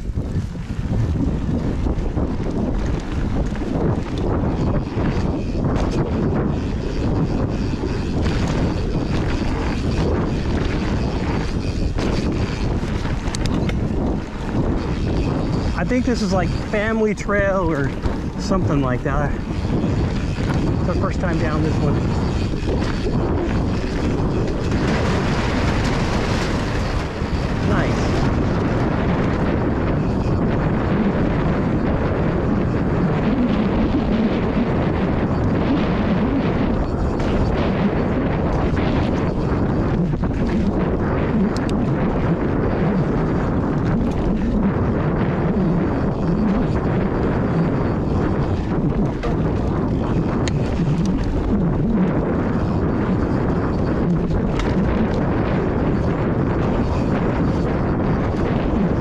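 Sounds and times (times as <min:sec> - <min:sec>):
bike tyres rolling on dirt: 0:00.0 - 0:59.0
wind on microphone: 0:00.0 - 0:59.0
tyres rolling over dirt: 0:17.6 - 0:30.1.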